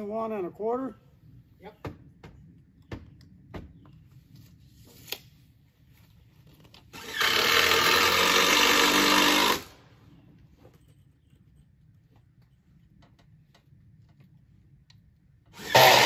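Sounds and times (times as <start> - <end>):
miter saw cutting wood: 6.9 - 9.8, 15.5 - 16.0.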